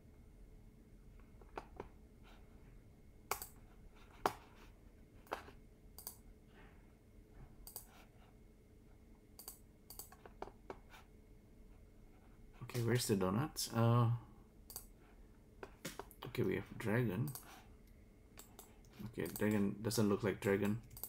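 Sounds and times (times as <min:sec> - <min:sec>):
faint steady hum: 0:00.0 - 0:21.0
computer mouse clicking: 0:03.3 - 0:04.5, 0:06.0 - 0:06.2, 0:07.6 - 0:08.0, 0:09.4 - 0:10.8, 0:14.7 - 0:14.9, 0:17.2 - 0:19.7, 0:20.4 - 0:21.0.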